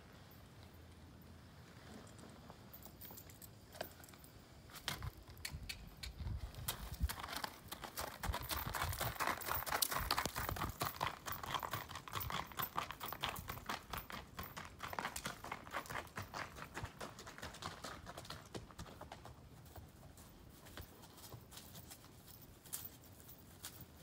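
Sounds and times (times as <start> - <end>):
horse hooves clip-clopping: 1.9 - 24.0.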